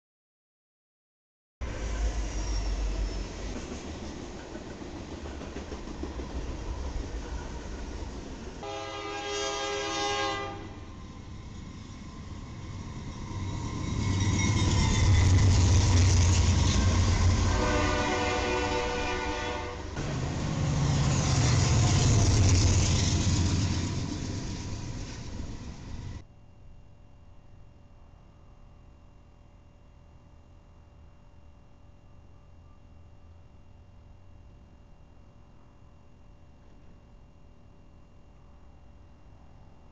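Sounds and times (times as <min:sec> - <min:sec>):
freight train rumble: 0:01.6 - 0:26.2
locomotive horn: 0:08.6 - 0:11.0, 0:17.1 - 0:22.1
locomotive engine rumble: 0:10.8 - 0:26.2.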